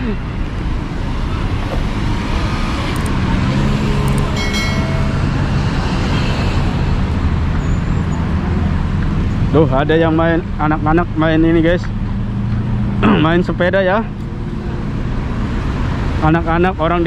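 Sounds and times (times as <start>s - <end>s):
low engine hum: 0.0s - 7.4s
road traffic: 0.0s - 17.0s.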